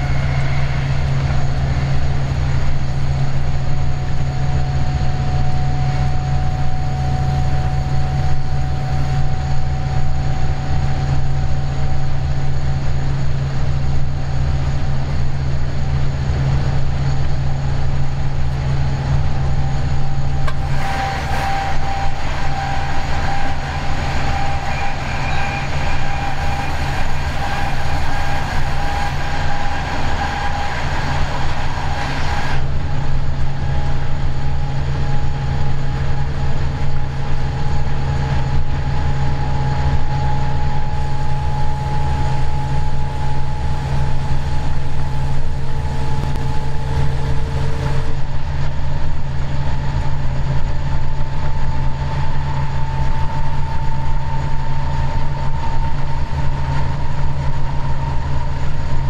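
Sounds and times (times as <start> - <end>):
diesel locomotive drone: 0.0 - 59.0
passing freight train rushing: 0.0 - 59.0.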